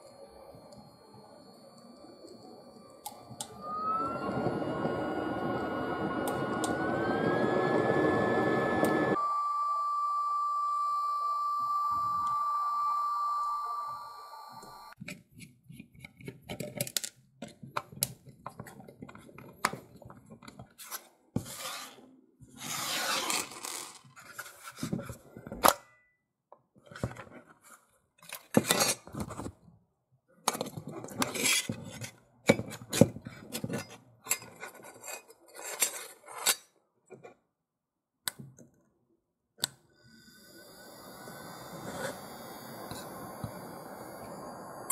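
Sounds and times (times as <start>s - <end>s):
fan whine: 0.0s - 15.0s, 40.1s - 44.9s
stove fire rushing: 2.3s - 9.2s, 40.2s - 44.9s.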